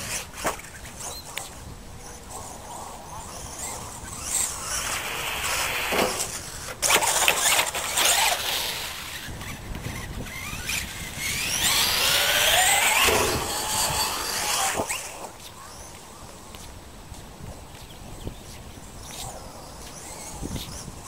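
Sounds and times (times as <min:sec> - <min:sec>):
electric motor whining: 0:02.0 - 0:15.3.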